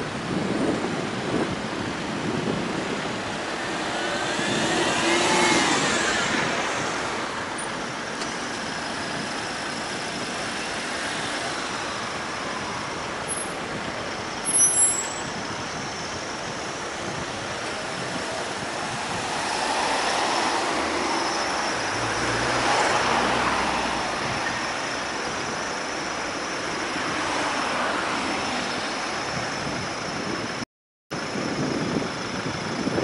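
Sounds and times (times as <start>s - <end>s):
road traffic noise: 0.0s - 33.0s
car engine pulling away: 2.2s - 14.6s.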